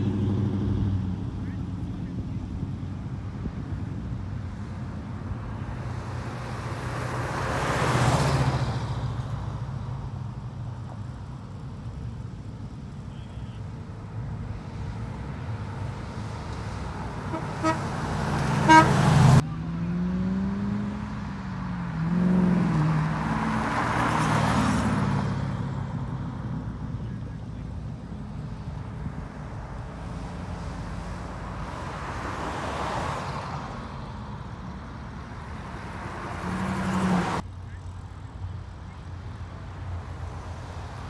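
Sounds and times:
cars driving past: 0.0s - 41.0s
car horn toots: 17.3s - 17.9s, 18.6s - 19.1s.

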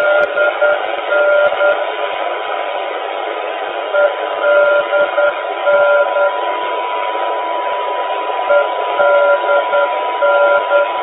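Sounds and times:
morse code beeping: 0.0s - 1.8s, 4.0s - 6.4s, 8.5s - 11.0s
loud radio hiss: 0.0s - 11.0s
static crackles: 0.0s - 11.0s.

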